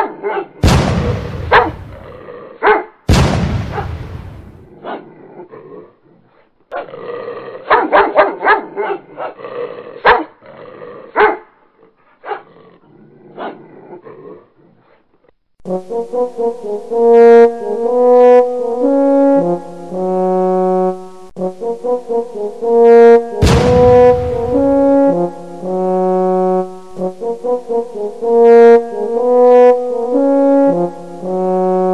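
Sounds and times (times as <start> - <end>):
dogs barking: 0.0 - 0.6, 1.5 - 2.9, 3.7 - 4.0, 7.6 - 9.4, 10.0 - 10.4, 11.1 - 11.5, 12.2 - 12.5
horn-like brass music: 0.6 - 2.2, 15.6 - 31.9.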